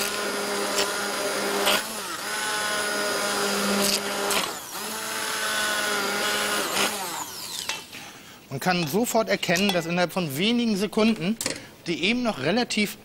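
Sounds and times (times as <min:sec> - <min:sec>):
immersion blender whining: 0:00.0 - 0:08.2.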